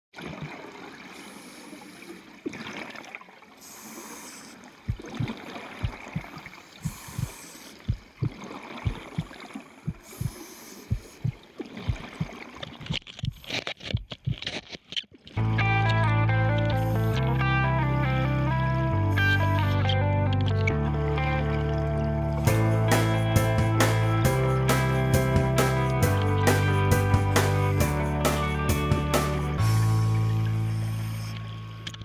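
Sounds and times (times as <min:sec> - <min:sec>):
underwater water noise: 0:00.2 - 0:22.5, 0:29.5 - 0:32.0
regulator bubbles hissing: 0:03.6 - 0:12.4, 0:29.5 - 0:31.8.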